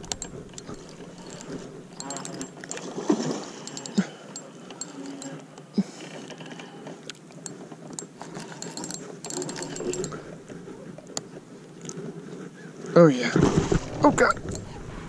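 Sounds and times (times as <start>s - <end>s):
fishing reel clicking: 0.0s - 5.5s, 7.4s - 10.4s, 14.4s - 14.8s.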